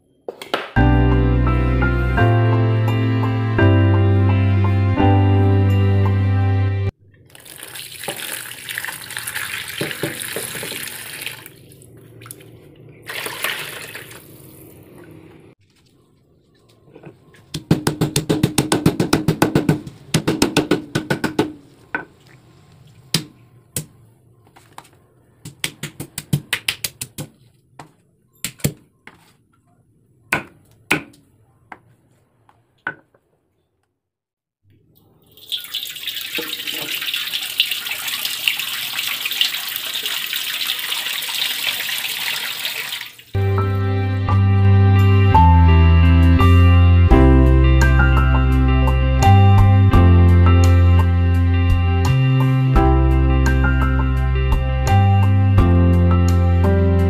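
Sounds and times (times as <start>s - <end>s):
tap water running into a sink: 7.3s - 11.6s, 13.1s - 14.6s, 35.3s - 43.4s
water running into a metal wok: 7.3s - 12.4s, 13.0s - 14.9s, 35.2s - 43.4s.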